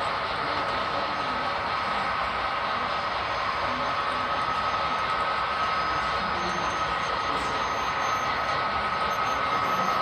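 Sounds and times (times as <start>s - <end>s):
thin steady tone: 2.8s - 10.0s.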